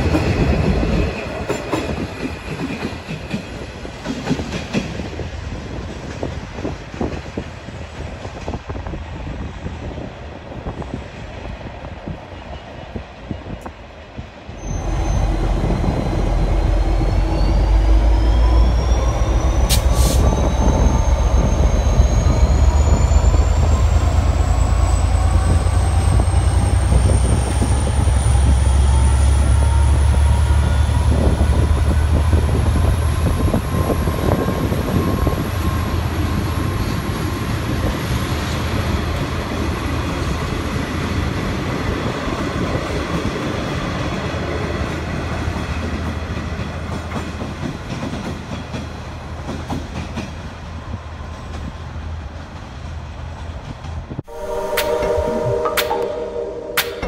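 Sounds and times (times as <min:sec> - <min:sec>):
high rising whine: 0:14.6 - 0:27.3, 0:54.2 - 0:57.0
locomotive engine rumble: 0:14.6 - 0:36.6.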